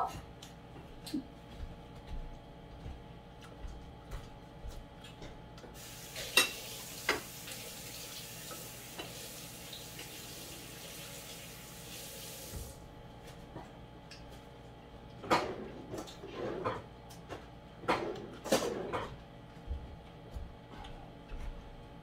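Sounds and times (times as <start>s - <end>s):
kitchen tap running: 5.8s - 12.8s
dishes clinking: 6.2s - 7.3s.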